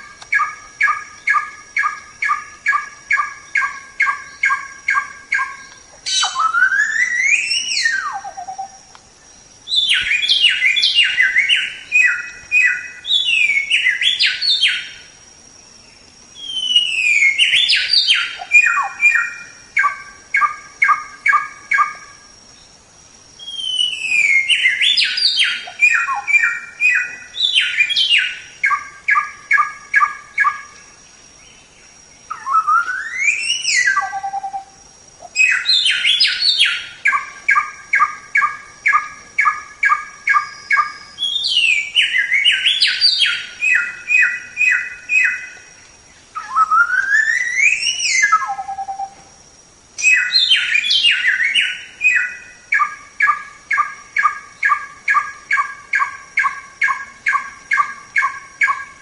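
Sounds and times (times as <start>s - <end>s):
bird singing repeated notes: 0.0s - 15.1s, 15.7s - 22.8s, 23.4s - 49.2s, 50.0s - 59.0s.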